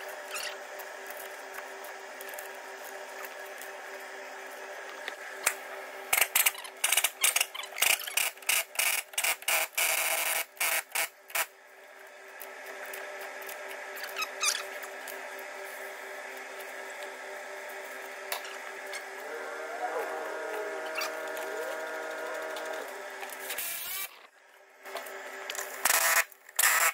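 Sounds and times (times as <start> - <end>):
steady hum: 10.4 - 26.8.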